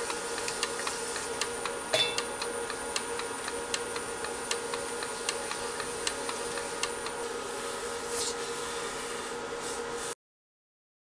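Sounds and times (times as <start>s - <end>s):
brushing hiss: 5.1s - 10.2s.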